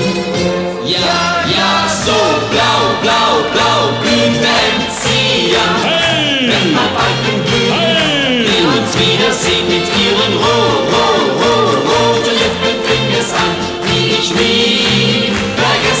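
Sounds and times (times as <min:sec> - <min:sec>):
band music: 0:00.0 - 0:16.0
group singing: 0:00.8 - 0:16.0
bass line: 0:04.0 - 0:11.7.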